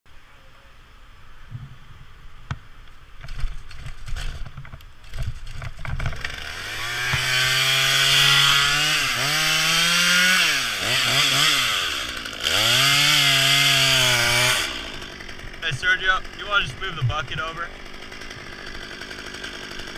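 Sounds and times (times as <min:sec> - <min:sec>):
chainsaw running hard: 0:05.1 - 0:19.9.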